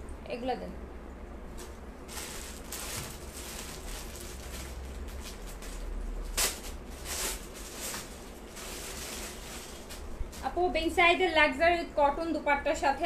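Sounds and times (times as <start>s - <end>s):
low steady hum: 0.0s - 13.0s
fabric rustling: 1.5s - 10.7s.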